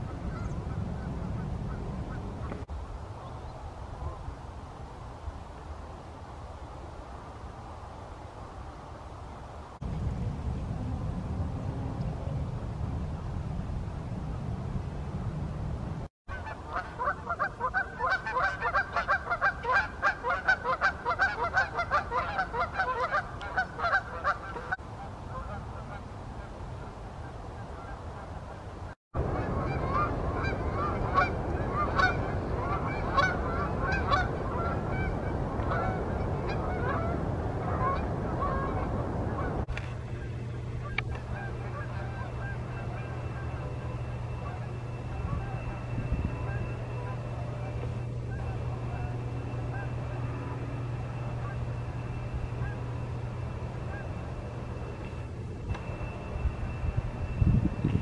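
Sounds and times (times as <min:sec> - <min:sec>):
geese honking in flight: 0:00.0 - 0:02.7, 0:16.3 - 0:58.0.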